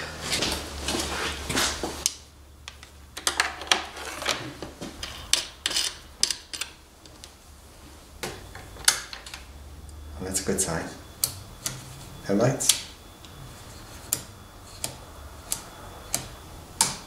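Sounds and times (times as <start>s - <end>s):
metallic clicks on battery terminals: 11.2s - 11.8s, 12.6s - 13.4s, 14.1s - 17.0s.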